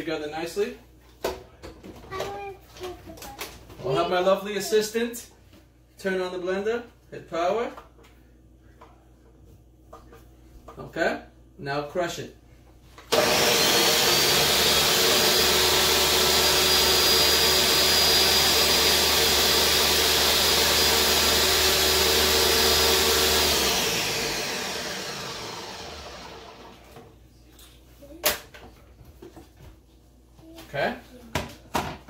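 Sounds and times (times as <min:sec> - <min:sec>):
blender running: 0:13.1 - 0:27.1.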